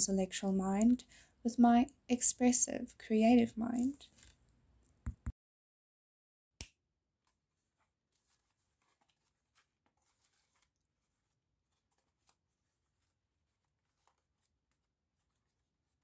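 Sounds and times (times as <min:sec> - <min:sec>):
newspaper and tape crinkling: 0:07.6 - 0:16.0.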